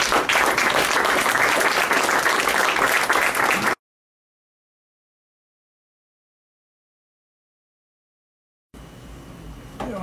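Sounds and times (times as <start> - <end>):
audience applauding: 0.0 - 3.8.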